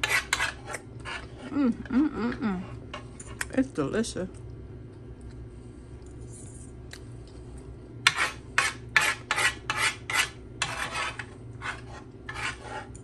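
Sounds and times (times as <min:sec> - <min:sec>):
metal spoon scraping a dish: 0:00.0 - 0:01.5, 0:08.0 - 0:13.0.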